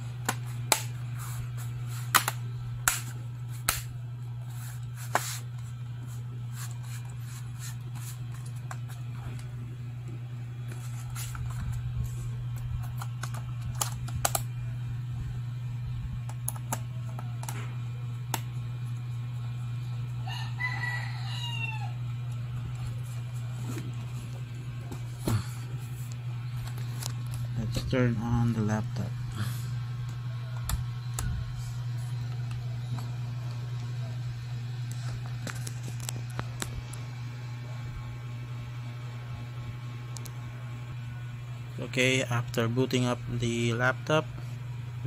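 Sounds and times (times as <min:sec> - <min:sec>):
steady low hum: 0:00.0 - 0:45.0
rooster crowing: 0:20.1 - 0:22.4.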